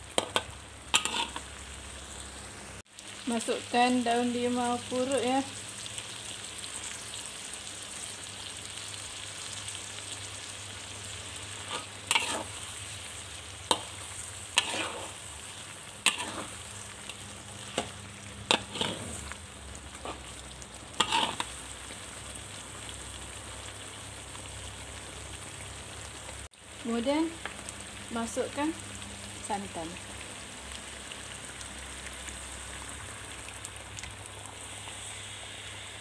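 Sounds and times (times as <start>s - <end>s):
food sizzling in a wok: 0.0s - 36.0s
spatula scraping a wok: 0.2s - 1.6s, 11.4s - 13.1s, 13.7s - 21.7s.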